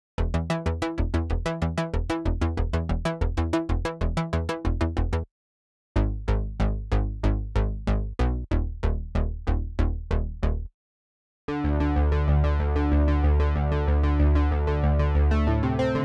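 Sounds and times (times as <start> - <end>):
synthesizer bass with higher notes: 0.2 - 5.3, 6.0 - 10.7, 11.5 - 16.0
synthesizer plucked arpeggio: 11.5 - 16.0.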